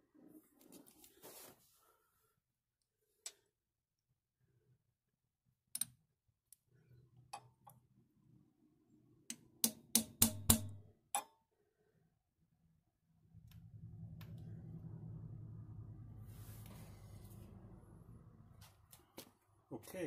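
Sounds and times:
hammer tapping metal driver: 9.3 - 11.3.

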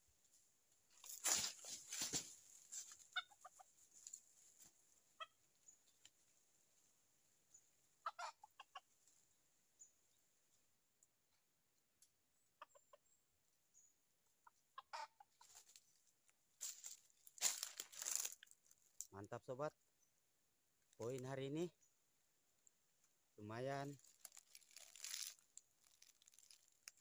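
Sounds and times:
rooster clucking: 3.1 - 3.7, 8.0 - 8.8, 14.4 - 15.5.

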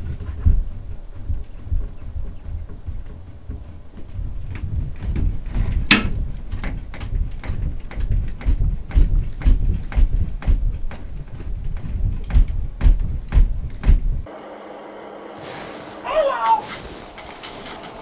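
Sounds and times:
low rumble: 0.0 - 14.3
knocks and clicks handling gear: 0.1 - 14.1.

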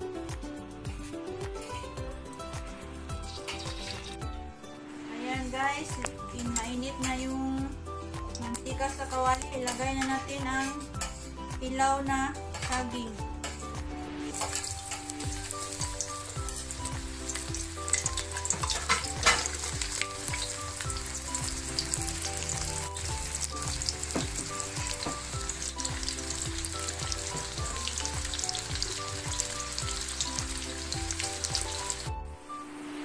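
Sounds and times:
banana slices sizzling in oil: 3.1 - 4.2, 14.1 - 32.1.

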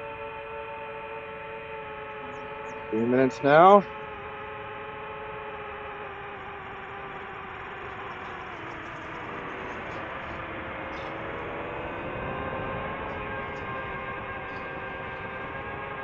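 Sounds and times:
drone propellers whining: 0.0 - 16.0
man's voice: 2.9 - 3.8.

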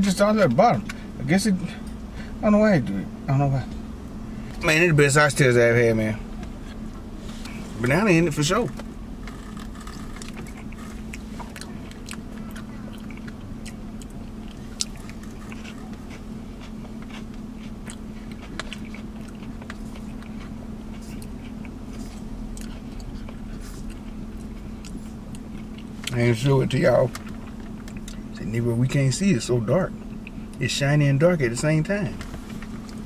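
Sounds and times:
low hum: 0.0 - 33.0
chewing and mouth sounds: 8.7 - 28.3.

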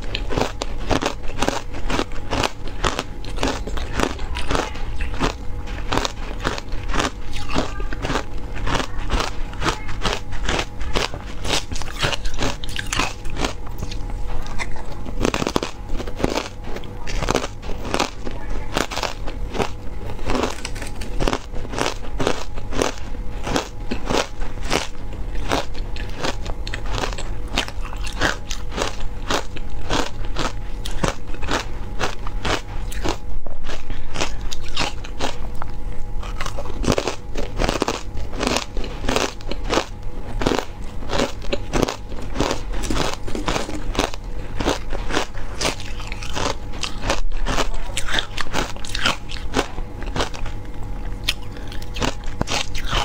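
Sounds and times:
crunching ice while chewing: 0.0 - 53.0.

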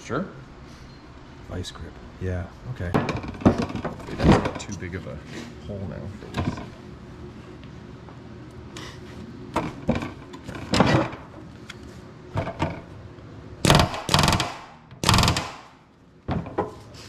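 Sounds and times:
pneumatic rivet tool bursts: 13.6 - 15.7.

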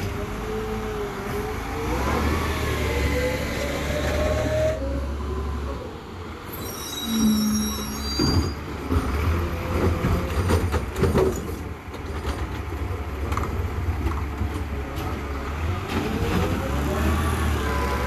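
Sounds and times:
thin high squeals: 6.5 - 8.7.

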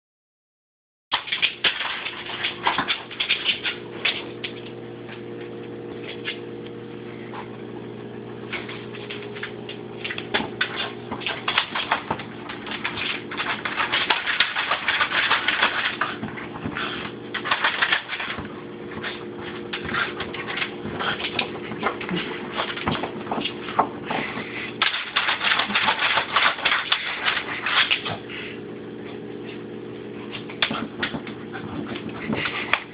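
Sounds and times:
dog scratching at fridge door: 1.2 - 4.6, 8.5 - 28.4.

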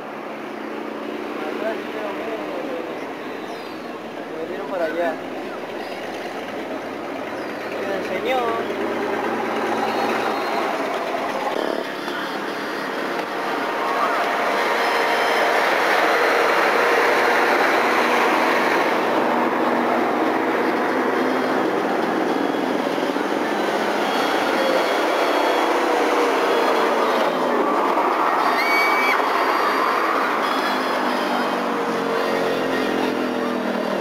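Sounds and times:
road traffic passing: 0.0 - 34.0
faint whistle-like tones: 9.6 - 13.0, 28.2 - 31.4.

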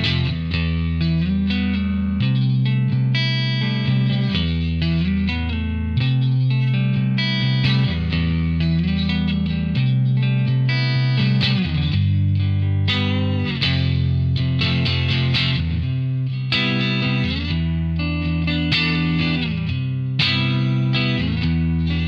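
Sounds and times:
electric guitar chords and notes: 0.0 - 22.0.

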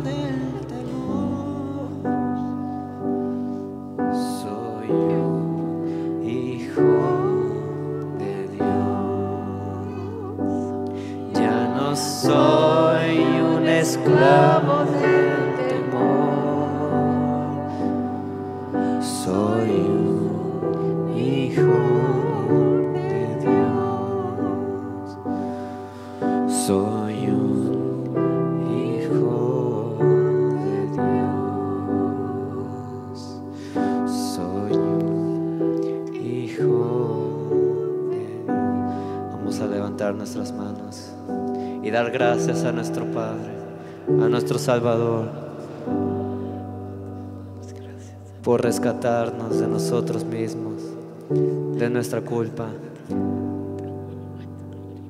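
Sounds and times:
held keyboard chords: 0.0 - 55.0
person singing with vibrato: 0.0 - 55.0.

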